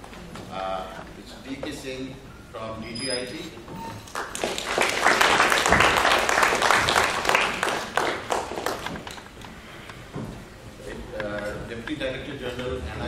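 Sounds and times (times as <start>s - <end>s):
audience applauding: 4.0s - 9.4s.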